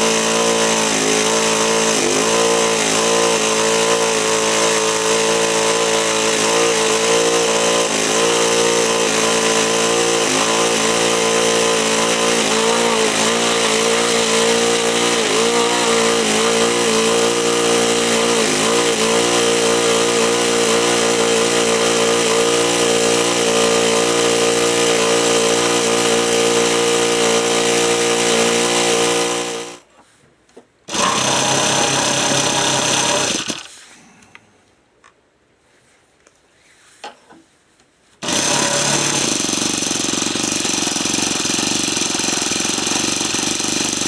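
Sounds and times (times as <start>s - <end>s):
steady whir: 0.0s - 29.8s.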